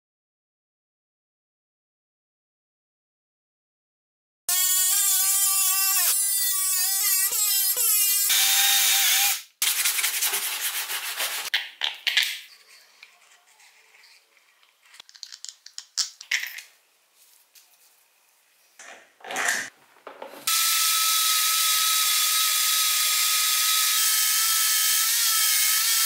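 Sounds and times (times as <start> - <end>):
plastic rubbed on sandpaper: 9.6 - 11.5, 12.5 - 15.0.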